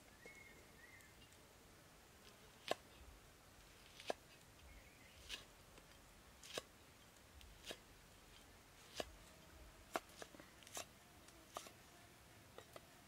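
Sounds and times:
cleaver chopping on wooden board: 9.9 - 10.9.

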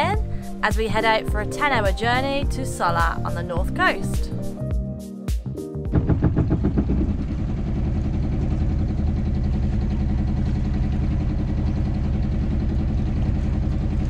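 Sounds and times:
outboard motor running: 5.9 - 14.0.

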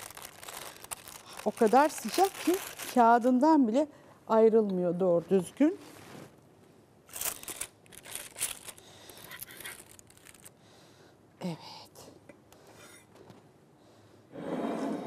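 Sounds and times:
baking paper crinkling and tearing: 0.0 - 3.4, 7.1 - 10.5.

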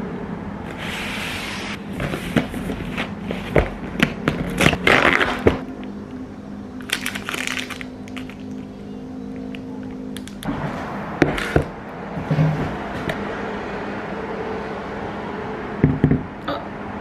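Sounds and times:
plastic wrapper crinkling: 6.8 - 8.6.

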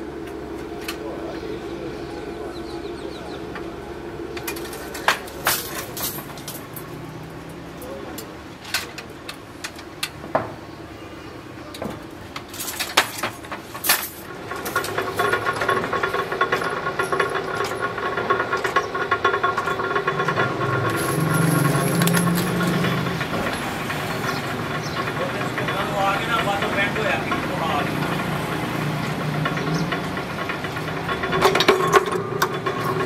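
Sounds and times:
metal clanks of wire bending: 4.3 - 7.0, 11.7 - 33.0
fast metallic machinery rattle: 4.4 - 7.1, 12.5 - 33.0.

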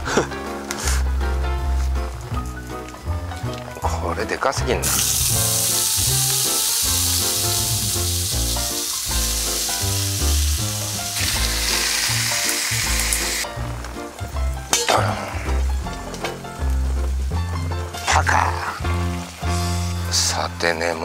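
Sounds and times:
background music: 0.0 - 21.0
bacon sizzling in a frying pan: 4.8 - 13.5, 18.6 - 20.2.

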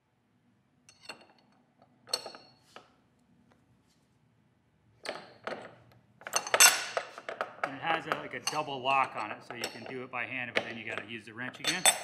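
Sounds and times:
wrench clinking on metal nut: 2.1 - 2.6, 5.0 - 12.0.

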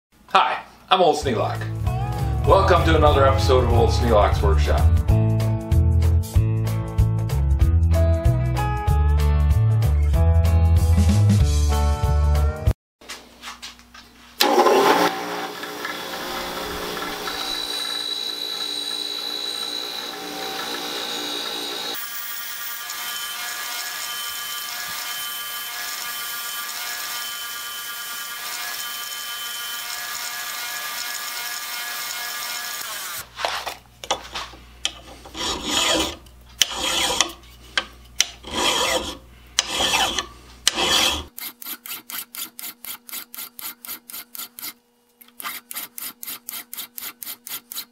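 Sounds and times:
metal scraping strokes: 34.3 - 47.9
hand file rasping on metal: 34.9 - 47.9.

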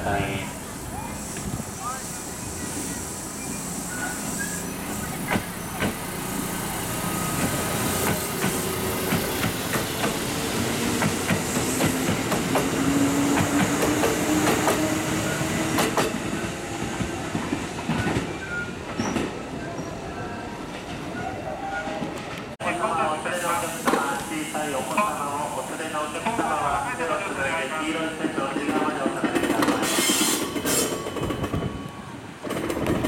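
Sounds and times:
wheels clacking over rail joints: 32.4 - 33.0.

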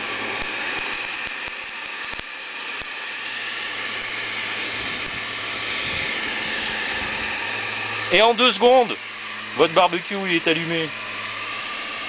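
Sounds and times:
electric blower rushing air: 0.0 - 12.0
scattered clicks: 0.4 - 2.9.

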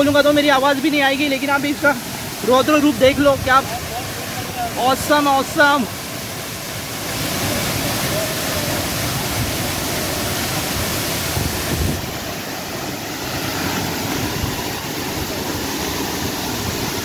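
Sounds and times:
waterfall rushing: 0.0 - 17.0
wind buffeting microphone: 11.2 - 12.4.

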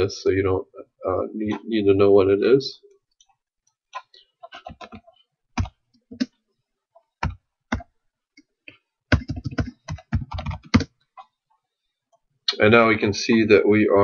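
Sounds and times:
keyboard keys clicking: 9.1 - 10.9.

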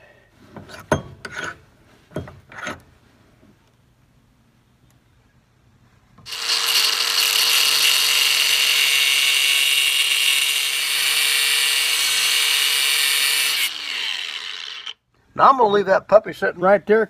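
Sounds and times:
angle grinder cutting metal bolt: 6.3 - 15.0.

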